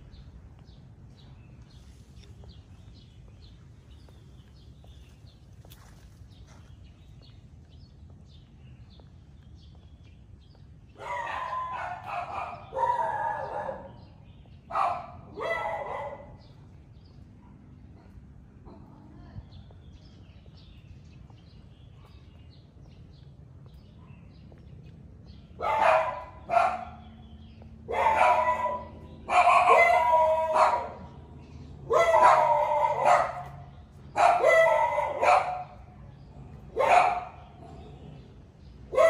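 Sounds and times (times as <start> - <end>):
dog barking: 11.0 - 14.1, 14.7 - 16.5, 25.6 - 27.0, 27.9 - 31.2, 31.8 - 35.9, 36.6 - 37.8.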